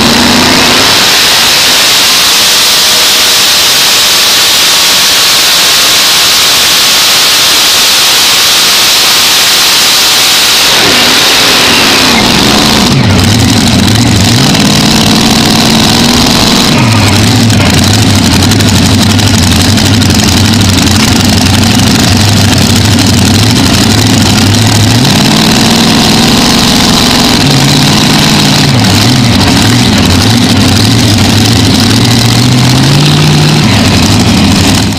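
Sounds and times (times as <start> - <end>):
racing engine revving and idling: 0.0 - 34.9.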